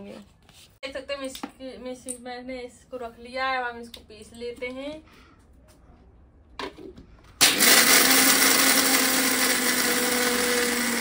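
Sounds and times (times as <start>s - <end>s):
mixer grinder grinding: 7.4s - 11.0s.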